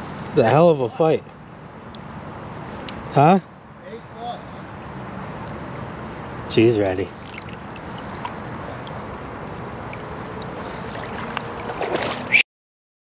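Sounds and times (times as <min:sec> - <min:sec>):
river water running: 0:06.8 - 0:12.4
small splashes and knocks: 0:07.2 - 0:12.4.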